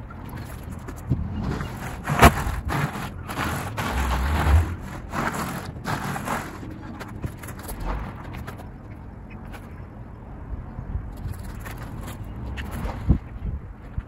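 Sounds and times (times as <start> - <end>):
tyres crunching over gravel: 0.2 - 8.9.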